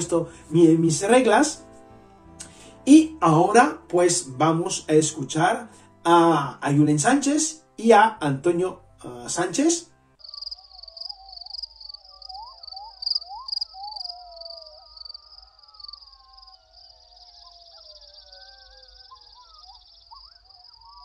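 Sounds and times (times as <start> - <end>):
crickets chirping: 10.2 - 21.0
night creatures calling: 10.2 - 21.0.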